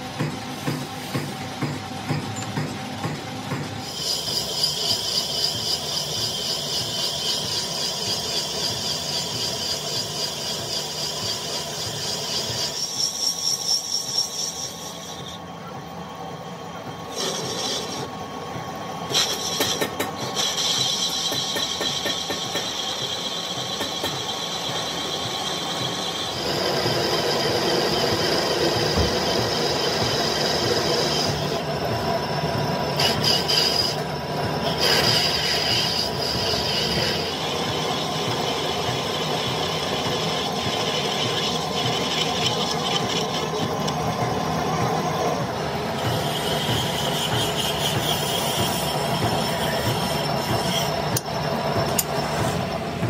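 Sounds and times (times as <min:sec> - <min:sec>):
high whine of cutting tool: 0:00.0 - 0:53.0
metal lathe running: 0:00.0 - 0:53.0
hand file rasping on metal: 0:17.1 - 0:18.1, 0:34.7 - 0:37.8, 0:46.0 - 0:51.2.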